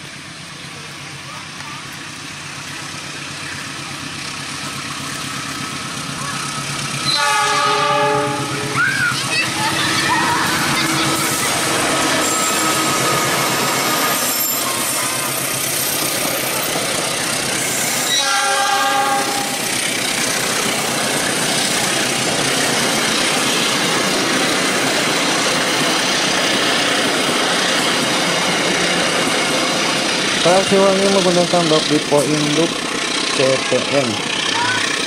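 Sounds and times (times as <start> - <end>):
locomotive passing: 0.0 - 35.0
train wheels rumbling on rail: 0.0 - 35.0
train horn: 7.0 - 8.9, 11.2 - 14.4, 18.1 - 19.6.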